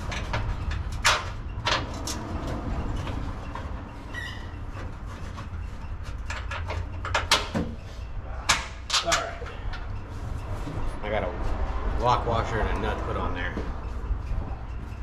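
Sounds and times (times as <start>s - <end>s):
metallic clicks and knocks: 0.0s - 7.8s.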